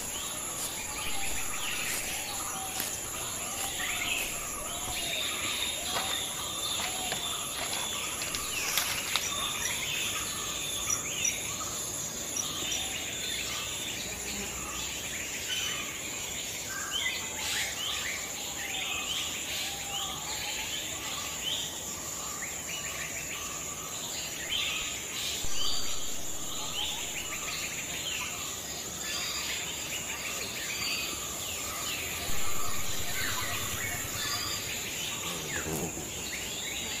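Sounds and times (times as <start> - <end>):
birds chirping: 0.0 - 14.0, 24.5 - 37.0
insects buzzing: 0.0 - 37.0.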